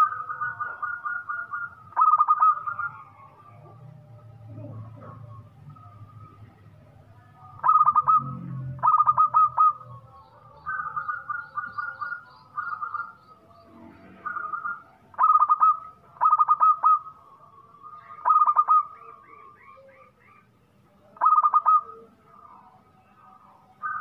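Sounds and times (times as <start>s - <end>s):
high bird chirps: 0.0s - 3.8s, 7.3s - 22.0s
dove cooing: 0.0s - 6.8s, 7.4s - 17.2s, 17.9s - 22.1s.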